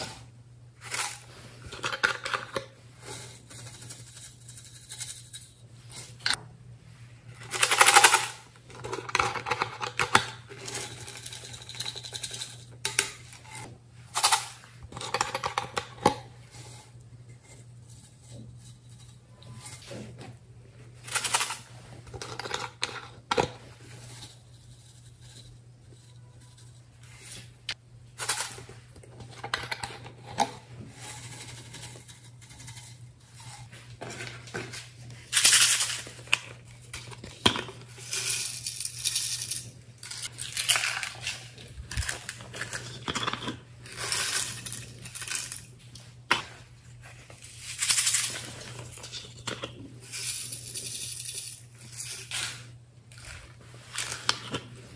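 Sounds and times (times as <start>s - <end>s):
glitter rattling in shaker bottles: 0.8s - 6.2s, 7.4s - 12.7s, 34.5s - 46.1s, 47.3s - 54.5s.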